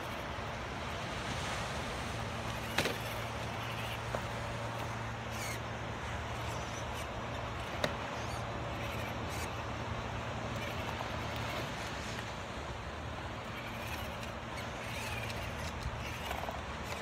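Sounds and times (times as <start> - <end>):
surf: 0.0 - 17.0
wind: 0.0 - 17.0
toy car electric motor running: 4.8 - 5.6, 6.3 - 9.7, 13.4 - 17.0.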